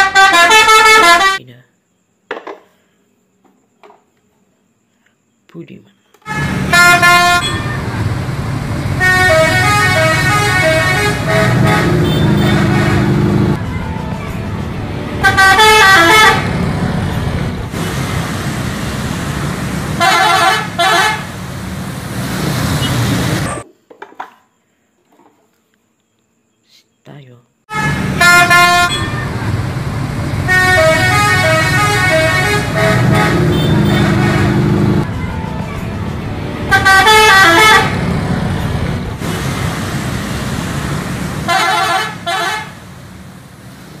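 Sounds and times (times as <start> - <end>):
bus horn blasts: 0.0 - 1.4, 6.3 - 17.7, 19.9 - 21.5, 22.7 - 23.6, 27.7 - 39.3, 41.4 - 42.9
bus driving by: 6.3 - 23.6, 27.7 - 44.0.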